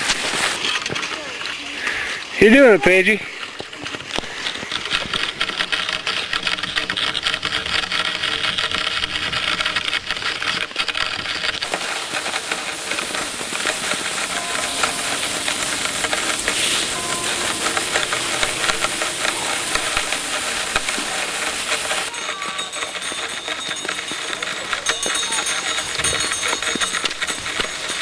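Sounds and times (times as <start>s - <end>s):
fine crackle: 0.0s - 2.4s, 3.0s - 28.0s
skis hissing on snow: 0.0s - 3.6s, 11.6s - 28.0s
wind hiss: 11.7s - 22.1s.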